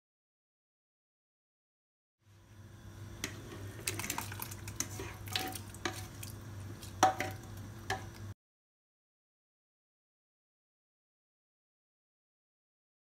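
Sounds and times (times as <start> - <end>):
steady low hum: 2.2 - 8.4
spatula scraping steel pots: 3.2 - 6.3.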